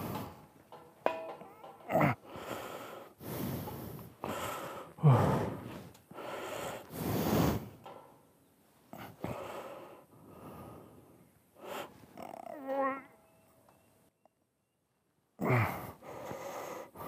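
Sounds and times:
man gasping: 2.1s - 7.6s, 15.4s - 17.0s
man breathing hard: 2.1s - 7.9s, 8.9s - 12.0s, 15.4s - 17.0s.

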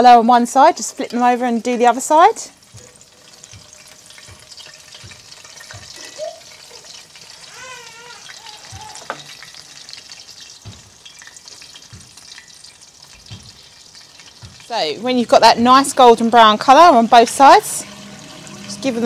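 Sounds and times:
bread deep-frying in oil: 0.0s - 19.0s.

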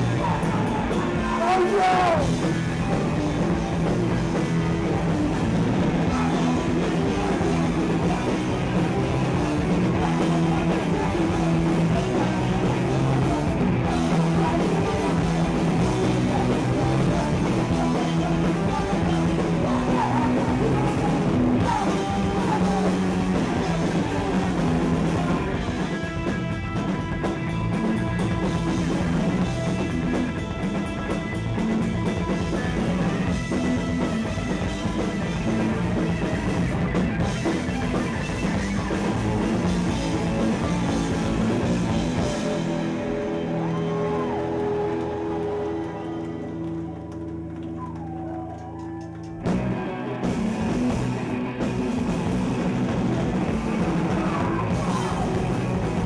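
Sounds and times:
person singing: 0.0s - 3.8s, 5.8s - 26.0s, 53.0s - 56.0s
bass guitar: 0.0s - 56.0s
drum kit: 0.0s - 56.0s
electric guitar: 0.0s - 56.0s.

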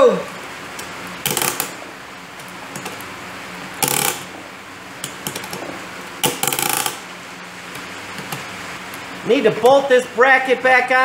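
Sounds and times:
ratchet lever clicking: 1.2s - 1.8s, 3.8s - 4.3s, 5.0s - 5.6s, 6.2s - 7.0s.

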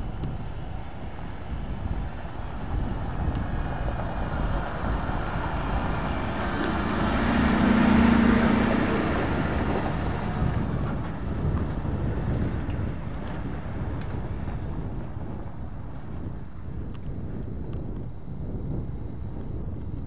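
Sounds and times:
truck driving past: 2.4s - 14.8s.

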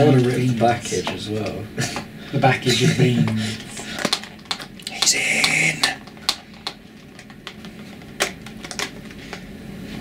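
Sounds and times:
packet crinkling and clicking: 3.2s - 9.5s.

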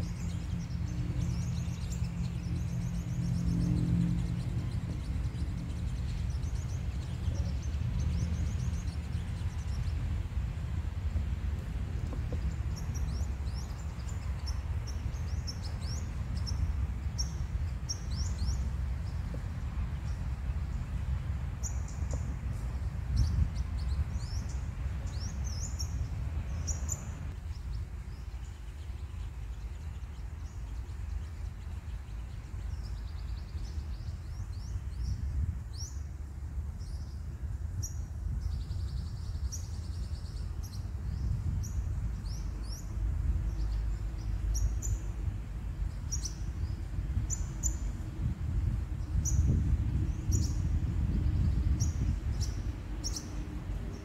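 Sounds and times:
birds chirping: 0.0s - 36.1s, 45.8s - 48.0s, 49.0s - 54.0s
steady low rumble: 0.0s - 54.0s.

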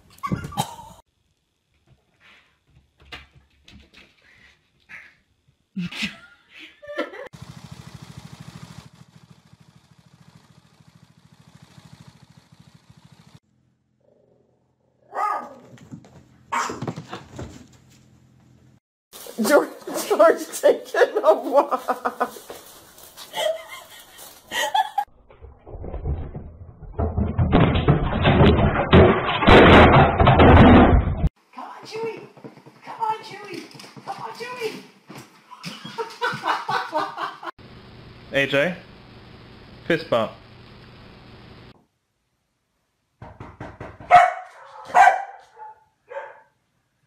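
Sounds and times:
small petrol engine running: 7.3s - 13.9s
tv falling with thumps and clattering: 25.8s - 31.3s.

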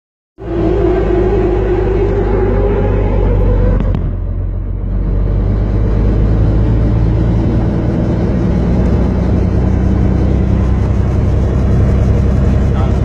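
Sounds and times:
helicopter engine and rotor: 4.5s - 13.0s.

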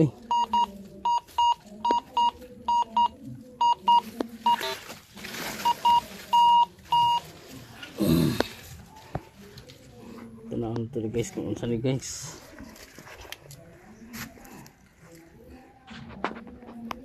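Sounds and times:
rustling scraping noise: 4.2s - 10.2s, 12.2s - 16.8s
metal detector beeps: 5.6s - 7.2s.

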